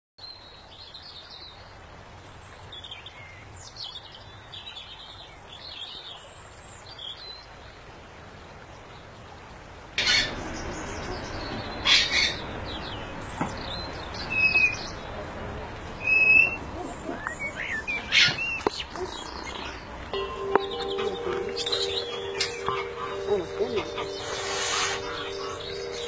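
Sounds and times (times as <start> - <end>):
songbirds chirping and trilling: 10.0 - 26.0.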